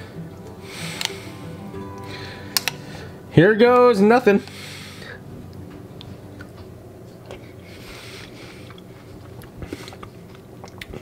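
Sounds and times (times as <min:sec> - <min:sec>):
low steady hum: 0:00.0 - 0:11.0
wet chewing mouth sounds: 0:08.2 - 0:11.0.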